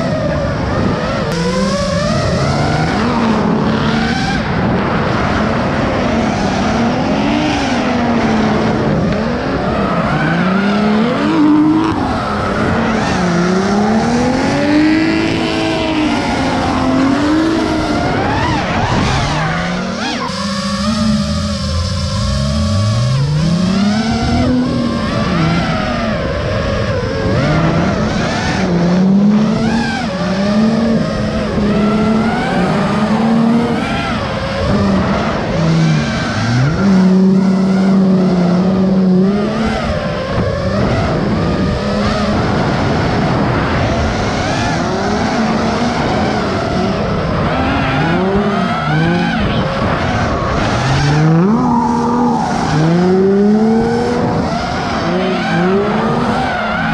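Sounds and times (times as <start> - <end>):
car engine revving: 0.0 - 56.9
tyres squealing and skidding: 9.3 - 26.4, 44.4 - 56.9.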